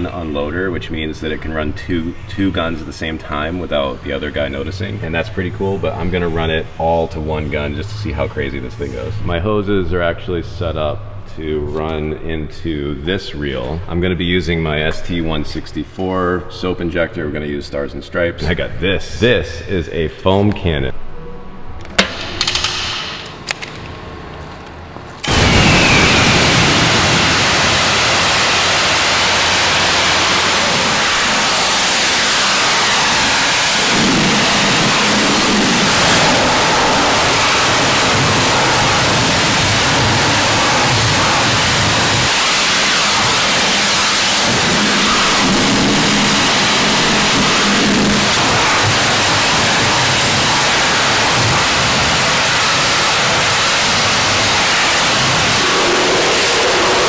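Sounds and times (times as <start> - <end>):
pressure washer spray hissing: 25.2 - 57.0.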